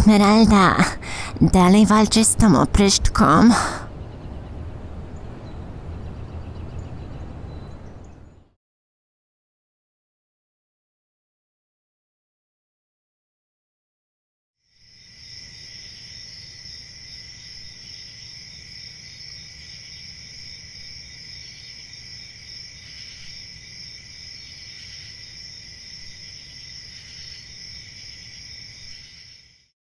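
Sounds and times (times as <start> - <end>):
crickets chirping: 14.6 - 29.7.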